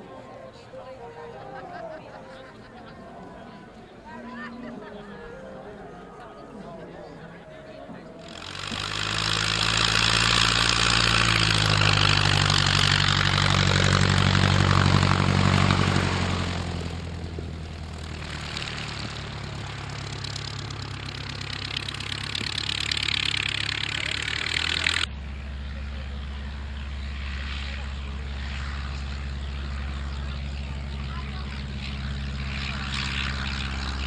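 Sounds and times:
piston engine and propeller: 8.0 - 34.0.

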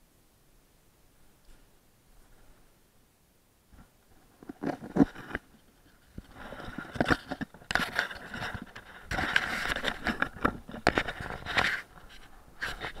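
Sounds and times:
rustling against microphone: 3.7 - 13.0.

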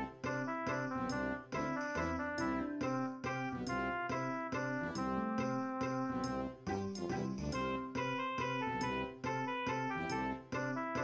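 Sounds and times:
light tune over steady beat: 0.0 - 11.0.

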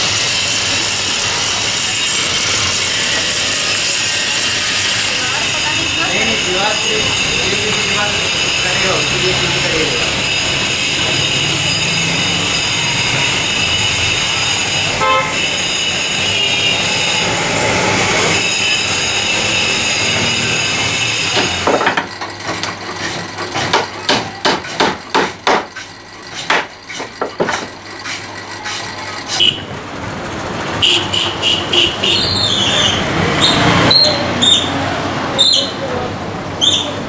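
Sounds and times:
street traffic noise: 0.0 - 37.0
vehicle horn honking: 14.9 - 17.4, 29.3 - 29.7, 30.8 - 34.6
hammer striking wood: 21.3 - 27.8.

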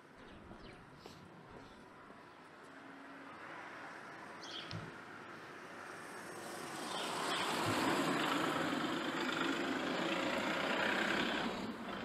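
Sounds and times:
car driving past: 5.6 - 12.0.

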